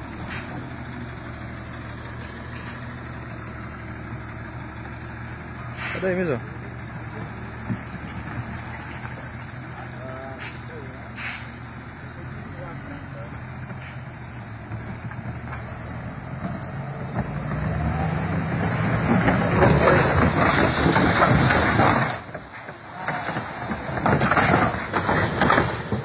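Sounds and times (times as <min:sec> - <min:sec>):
heavy truck engine running: 0:00.0 - 0:26.0
loud rough rush of noise: 0:14.0 - 0:26.0.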